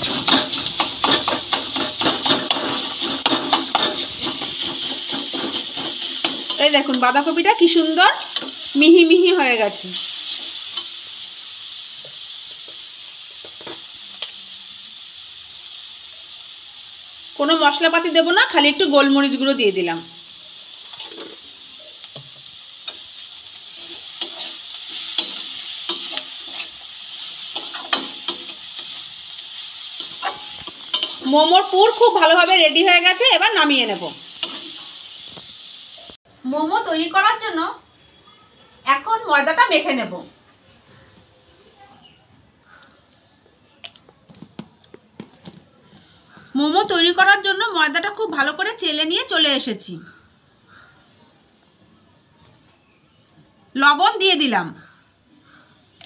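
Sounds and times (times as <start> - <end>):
metal spatula tapping and scraping pan: 0.0 - 7.2, 8.2 - 8.7, 23.8 - 26.8, 27.4 - 29.0, 30.0 - 31.3, 34.4 - 34.8
pan sizzling: 0.0 - 37.8, 43.4 - 50.9.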